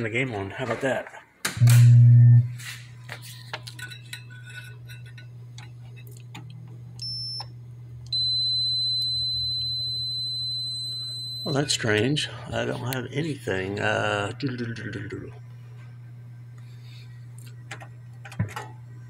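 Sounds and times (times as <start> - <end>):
electrical hum: 0.0 - 19.0
logic probe high beep: 8.1 - 11.7.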